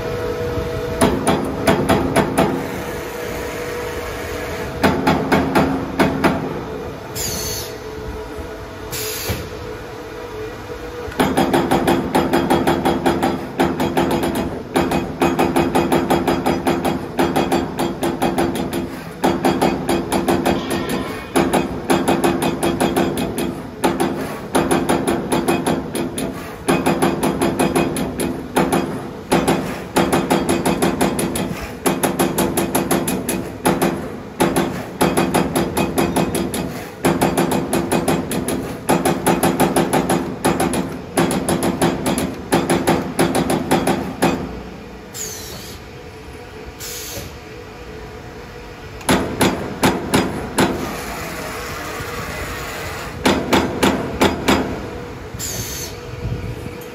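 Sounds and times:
steady machine hum: 0.0 - 56.9
punch press punching sheet metal: 11.2 - 45.6, 49.1 - 50.9, 53.2 - 54.9.

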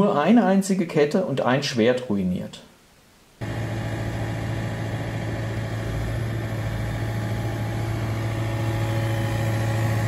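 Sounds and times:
excavator diesel engine running: 3.4 - 10.0.

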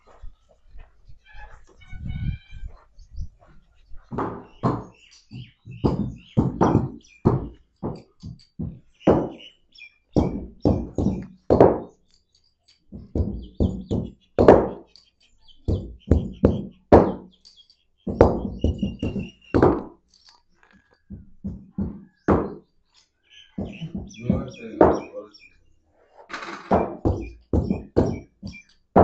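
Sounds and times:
wooden stick knocking: 4.1 - 9.4, 10.2 - 12.0, 18.1 - 20.0, 20.9 - 22.6, 23.6 - 25.1, 26.3 - 29.0.

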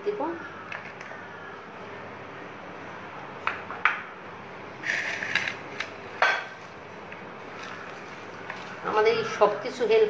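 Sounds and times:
rustling scrape: 4.8 - 5.6.

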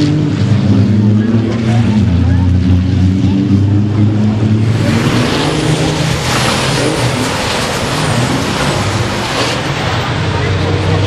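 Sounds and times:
loud rushing noise: 0.0 - 11.0
truck diesel engines running: 0.0 - 11.0.

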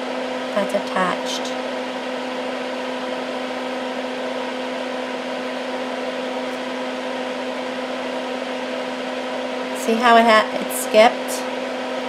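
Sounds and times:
fume extractor fan whirring: 0.0 - 12.0.

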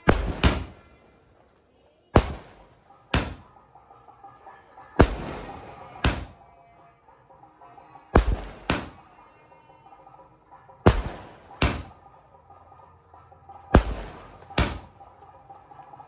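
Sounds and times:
fireworks shells banging: 0.0 - 1.2, 10.0 - 16.0.

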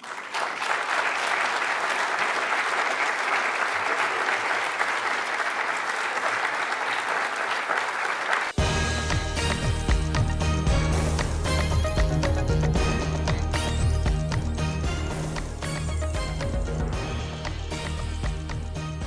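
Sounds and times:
audience applauding: 0.0 - 10.3.

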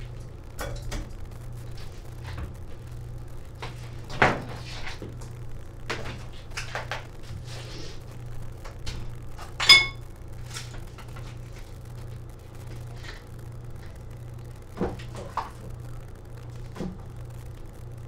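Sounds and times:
steady low hum: 0.0 - 18.0
sharp metallic clink: 9.6 - 10.0.

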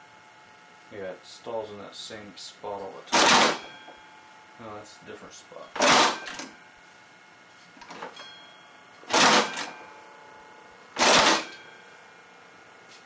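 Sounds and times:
compressed-air engine chuffing: 3.1 - 3.6, 9.1 - 9.7, 11.0 - 11.6.

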